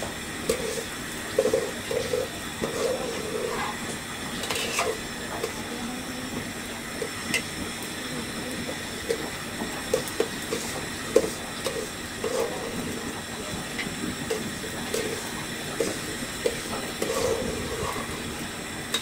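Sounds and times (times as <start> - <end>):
rice frying hiss: 0.0 - 19.0
metal spoon scraping a pot: 0.4 - 5.0, 10.5 - 12.8, 15.8 - 18.3.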